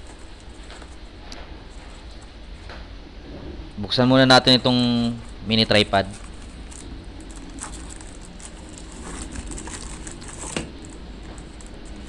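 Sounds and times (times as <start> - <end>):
plastic packaging crinkling: 5.2 - 12.0.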